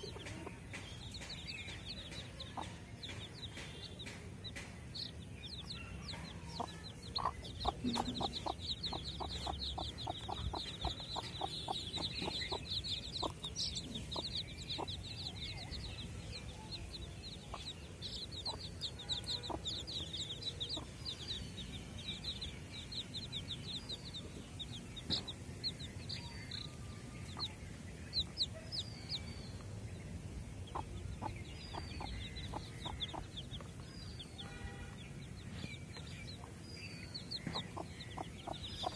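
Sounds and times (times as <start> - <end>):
hen clucking: 0.0 - 4.7, 5.7 - 16.6, 17.3 - 21.4, 30.6 - 33.8, 37.3 - 38.9
chicks peeping: 0.0 - 38.9.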